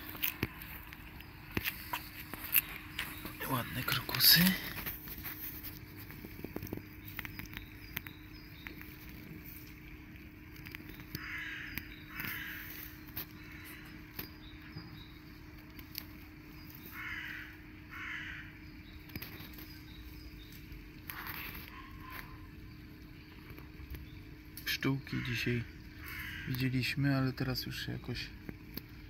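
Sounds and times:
small birds chirping: 0.0s - 29.0s
crow cawing: 11.2s - 14.0s, 16.8s - 18.6s, 25.1s - 26.9s.

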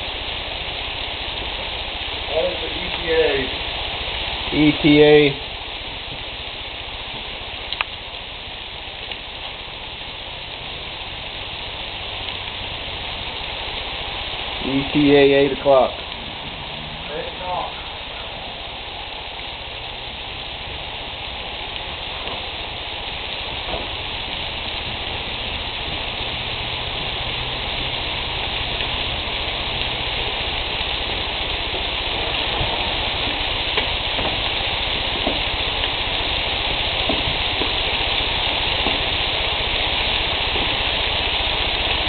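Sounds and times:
fat popping and crackling: 0.0s - 42.0s
meat sizzling on a grill: 0.0s - 42.0s.

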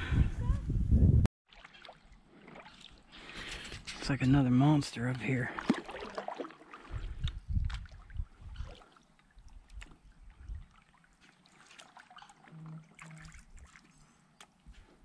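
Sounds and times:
paddle splashing in water: 1.5s - 3.8s, 5.5s - 14.6s.

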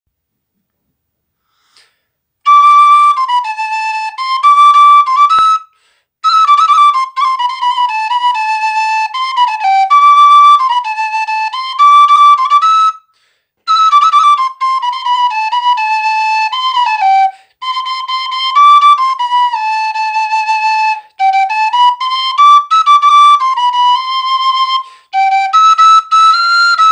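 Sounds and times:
wooden flute melody: 2.4s - 26.9s.

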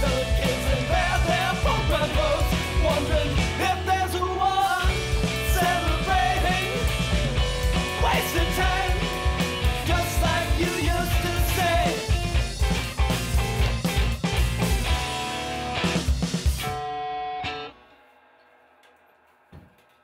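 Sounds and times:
man singing: 0.0s - 7.2s, 7.8s - 12.2s
rock band playing: 0.0s - 17.9s.

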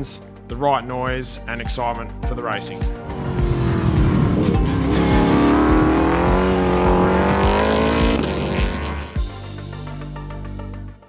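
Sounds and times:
background music with steady beat: 0.0s - 11.0s
race car engine accelerating: 2.9s - 9.2s.

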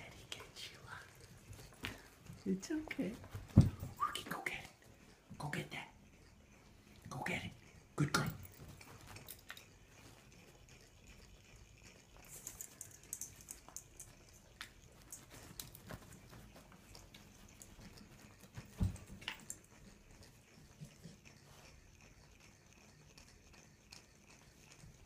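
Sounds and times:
dog moving on bed: 3.0s - 4.2s.

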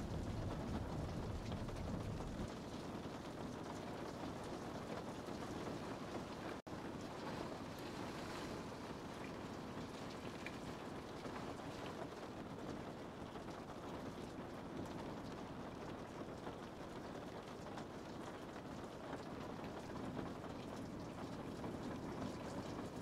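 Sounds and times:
low rumble: 0.0s - 2.5s.

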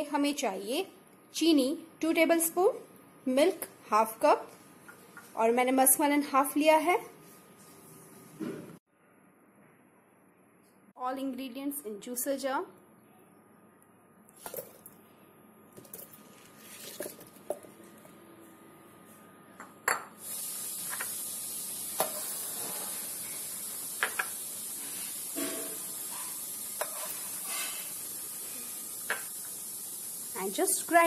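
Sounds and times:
steady hiss: 20.2s - 31.0s.

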